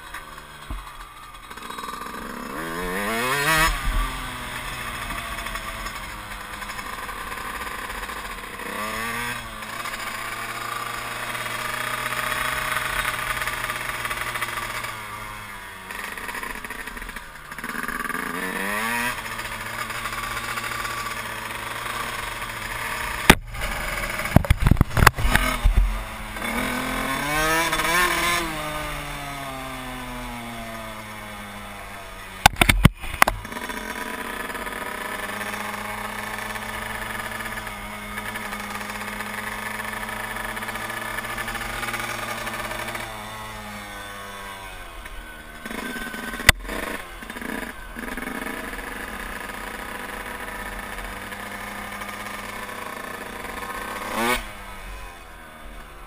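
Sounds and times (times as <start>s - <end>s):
two-stroke motorcycle engine revving: 0.0s - 56.0s.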